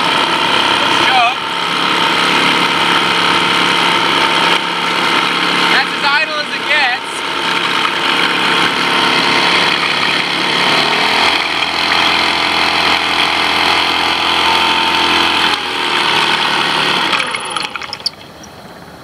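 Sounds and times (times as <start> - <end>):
outboard motor running: 0.0 - 19.0
propeller churning water: 0.0 - 19.0.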